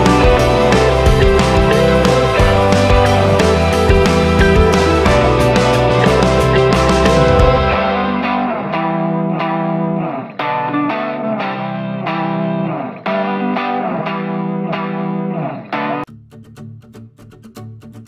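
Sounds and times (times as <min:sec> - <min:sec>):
steady bass: 0:00.0 - 0:08.7
plucked guitar with effects: 0:00.0 - 0:18.0.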